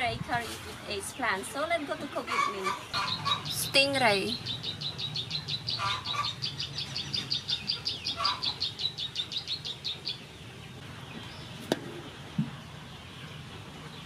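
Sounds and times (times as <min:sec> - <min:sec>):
bird chirping rapidly: 0:02.4 - 0:11.6.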